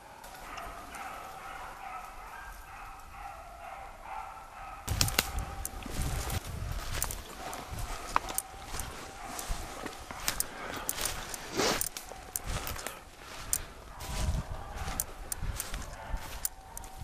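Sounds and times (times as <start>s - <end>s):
distant hounds baying: 0.0s - 17.0s
brush crackling: 4.9s - 17.0s
footsteps crunching through snow: 4.9s - 17.0s.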